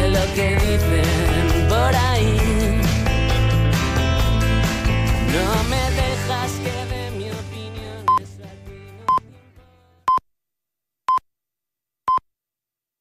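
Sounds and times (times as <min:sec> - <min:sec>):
pop song: 0:00.0 - 0:10.1.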